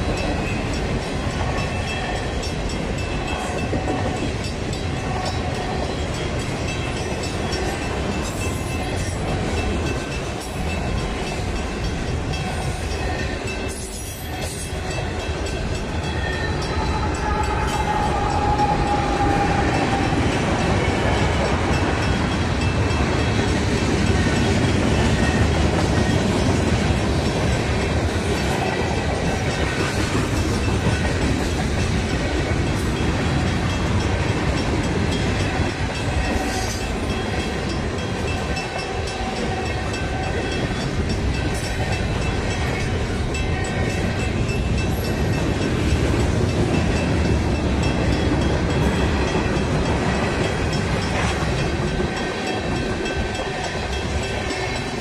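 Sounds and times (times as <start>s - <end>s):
freight train rumbling past: 0.0s - 55.0s.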